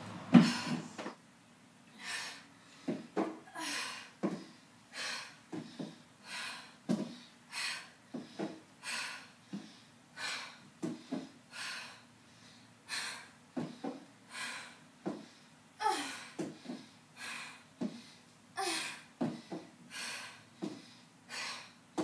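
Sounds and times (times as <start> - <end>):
heavy exhalations: 0.3 - 1.1
feet thumping on step: 0.3 - 1.2, 4.2 - 4.5, 6.9 - 7.2.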